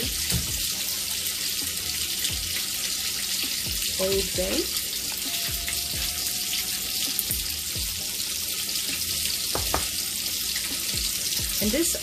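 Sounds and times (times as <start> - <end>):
pans sizzling: 0.0 - 12.0.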